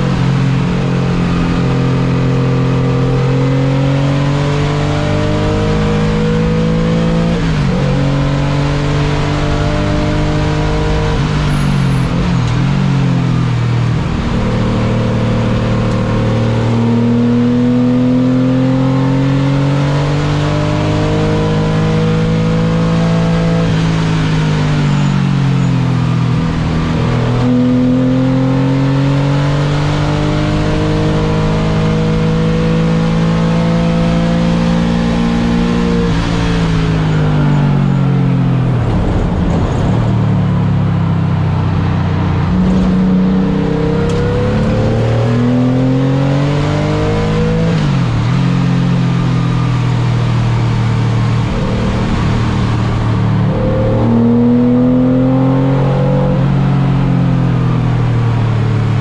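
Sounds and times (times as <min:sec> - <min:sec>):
race car engine revving: 0:00.0 - 0:59.0
blipped downshifts: 0:34.7 - 0:58.9.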